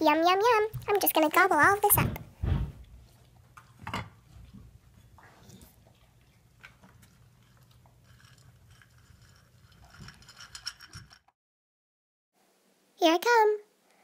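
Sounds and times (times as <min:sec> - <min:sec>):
dog crunching food from bowl: 0:05.5 - 0:11.1.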